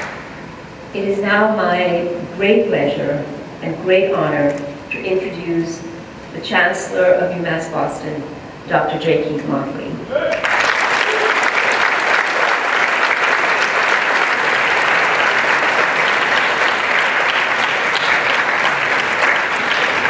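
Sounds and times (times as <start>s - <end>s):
audience applauding: 0.0s - 0.4s, 10.3s - 20.0s.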